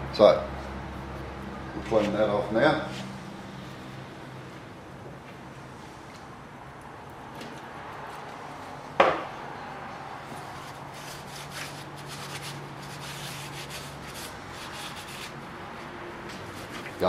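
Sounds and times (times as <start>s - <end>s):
cloth rubbing on metal: 10.3s - 15.4s.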